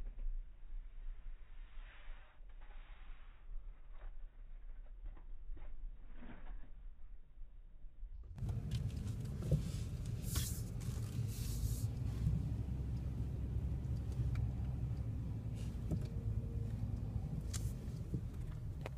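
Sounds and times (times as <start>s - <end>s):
engine and road rumble: 8.0s - 18.9s.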